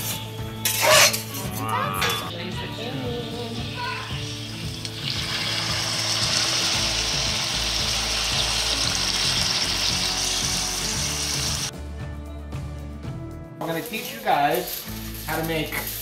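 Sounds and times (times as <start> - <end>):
background music: 0.0 - 16.0
chicken sizzling in a hot pan: 4.0 - 11.7, 14.0 - 16.0.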